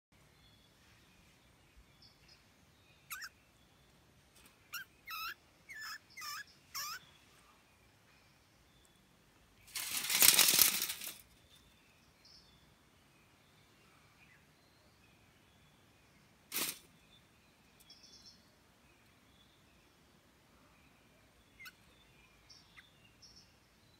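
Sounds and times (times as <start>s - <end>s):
mouse squeaking: 3.1s - 3.3s, 4.7s - 7.0s.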